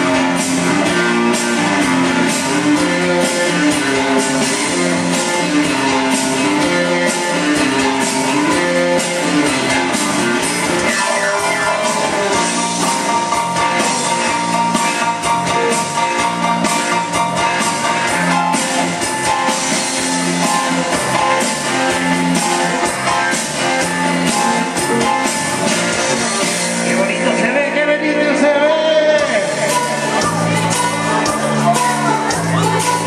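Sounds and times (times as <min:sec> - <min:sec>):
person singing: 0:00.0 - 0:16.1, 0:26.0 - 0:33.0
loud dance music: 0:00.0 - 0:33.0.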